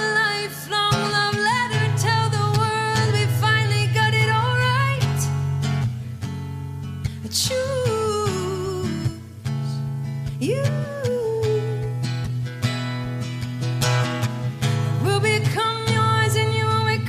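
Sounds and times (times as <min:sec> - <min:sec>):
acoustic guitar: 0:00.0 - 0:17.0
person singing: 0:10.4 - 0:12.0.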